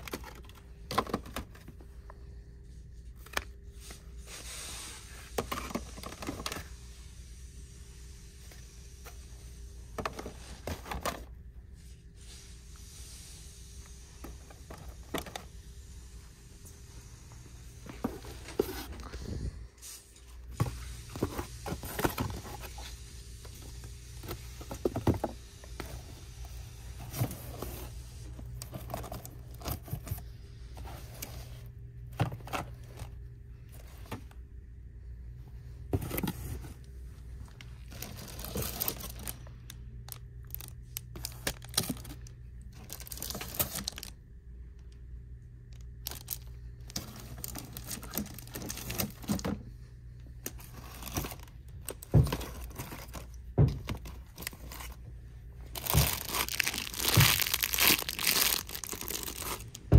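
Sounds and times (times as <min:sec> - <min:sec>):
steady low hum: 0:00.0 - 0:59.9
plastic packaging crinkling: 0:37.6 - 0:44.2, 0:45.7 - 0:49.4, 0:55.6 - 0:59.9.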